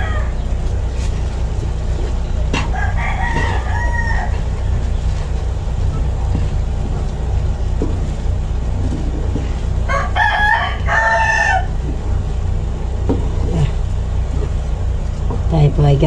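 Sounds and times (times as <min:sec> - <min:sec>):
rooster crowing: 0:00.0 - 0:00.5, 0:02.5 - 0:04.8, 0:09.8 - 0:11.9
steady low hum: 0:00.0 - 0:16.0.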